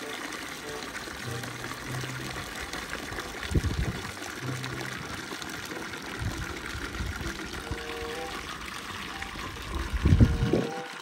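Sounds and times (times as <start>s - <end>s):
hose water splashing into tub: 0.0s - 11.0s.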